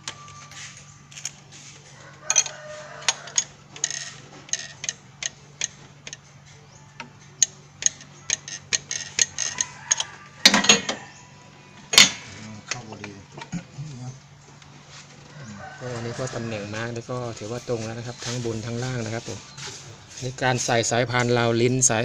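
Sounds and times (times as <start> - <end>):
metal wrench clicking on bolt: 2.3 - 6.2, 7.1 - 10.9.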